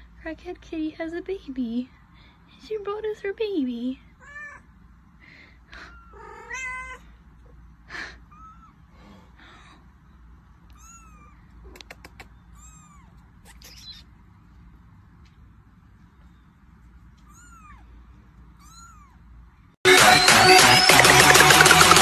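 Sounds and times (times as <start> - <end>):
cat meowing: 4.2 - 4.7, 5.9 - 7.1, 8.3 - 8.8, 10.7 - 11.8, 12.5 - 14.0, 17.2 - 17.9, 18.6 - 19.2
kitten mewing: 5.8 - 7.1, 8.2 - 8.8, 10.7 - 14.1, 17.2 - 17.9, 18.6 - 19.2.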